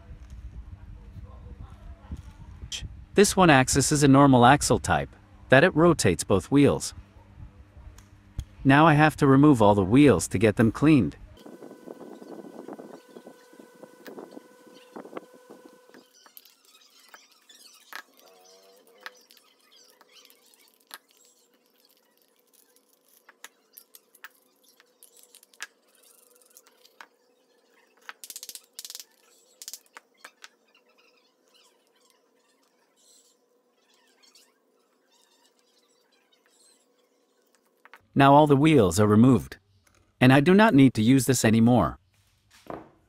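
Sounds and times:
faint steady hum: 0.0s - 16.1s
pitched hum: 5.7s - 16.2s
metal parts clicking and clinking: 27.9s - 30.5s.

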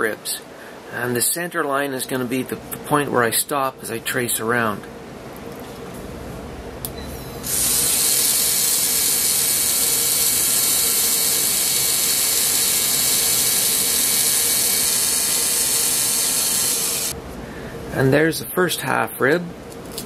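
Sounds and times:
pen motor whirring: 7.5s - 17.2s.

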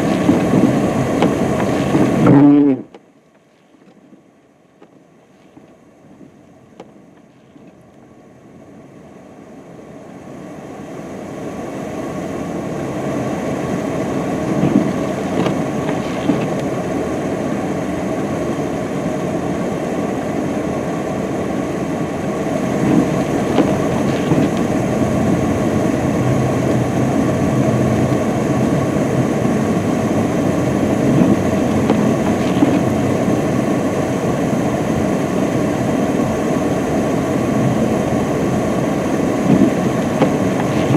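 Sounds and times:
wheels spinning in snow: 0.0s - 2.8s, 13.0s - 18.8s, 22.4s - 40.9s.

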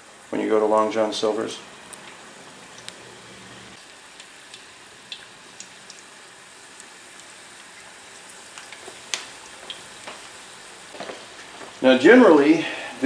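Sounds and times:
deep-frying sizzle: 0.0s - 13.0s
oil popping and crackling: 1.7s - 11.8s.

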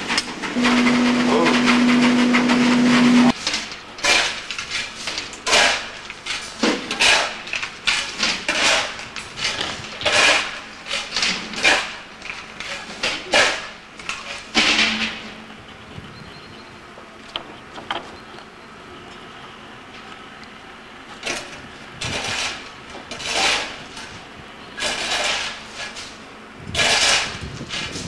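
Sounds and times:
loud steady hissing with hum: 0.0s - 17.5s.

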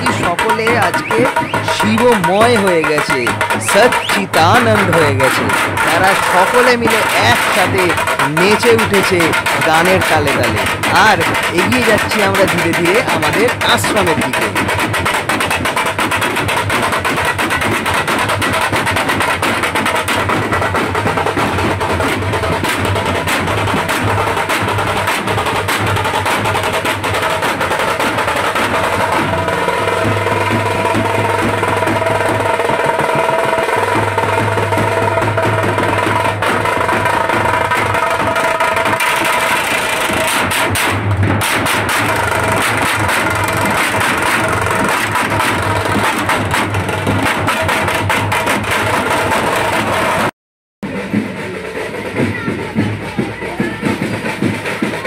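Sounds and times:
held pitched tones: 0.0s - 14.6s
drums playing fast rhythm: 0.0s - 55.0s.

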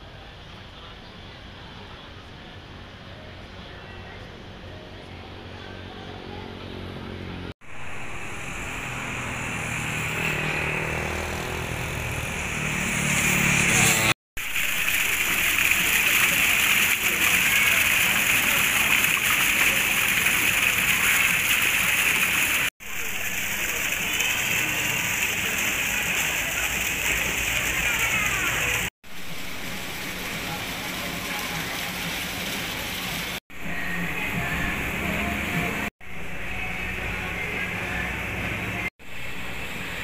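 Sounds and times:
water splashing into pond: 7.6s - 37.6s.

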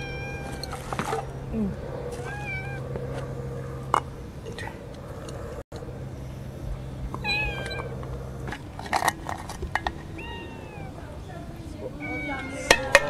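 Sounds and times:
cats meowing: 0.0s - 4.0s, 7.2s - 8.1s, 10.0s - 13.0s.

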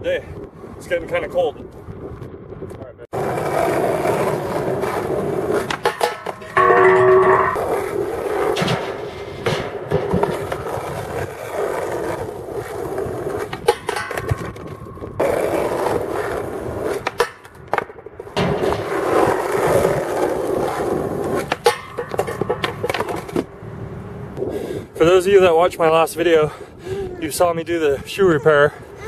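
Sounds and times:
skateboard wheels rolling on concrete: 0.0s - 29.0s
skateboard clacks: 3.2s - 23.6s
board clattering off metal bar: 5.7s - 7.6s, 21.5s - 23.4s.

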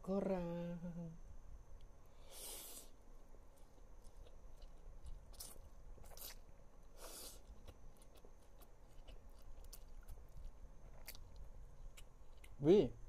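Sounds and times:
chewing noodles: 3.5s - 12.6s.

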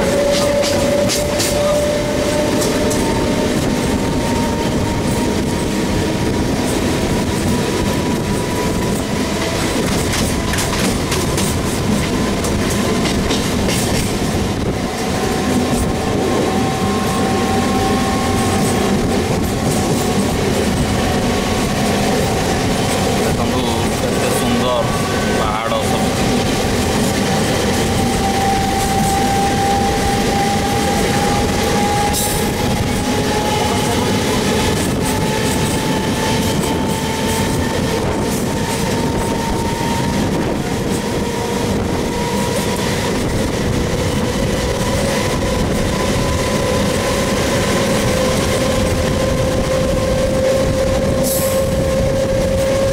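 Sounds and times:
train wheels rumbling on rails: 0.0s - 52.9s
rising motor whine: 26.0s - 37.5s.

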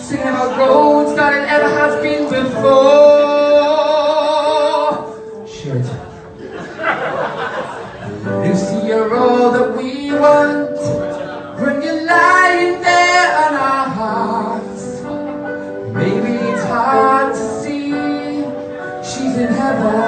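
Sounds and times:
backing music: 0.0s - 20.0s
woman singing a slow song: 16.0s - 20.0s.

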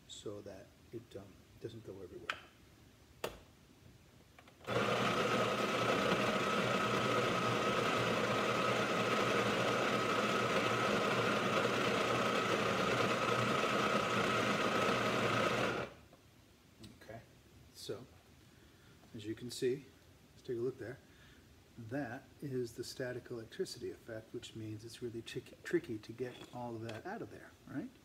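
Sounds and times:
coffee grinder whining: 4.6s - 16.0s.

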